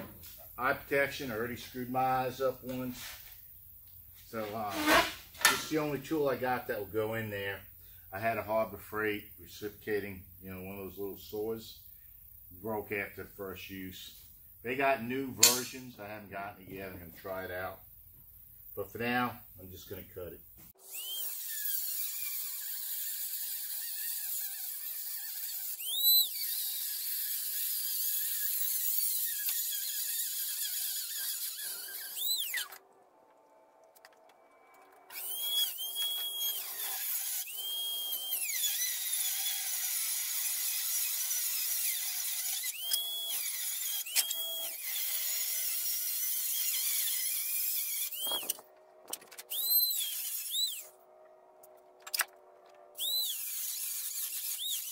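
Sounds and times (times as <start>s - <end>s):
rotary tool grinding whine: 20.7s - 54.9s.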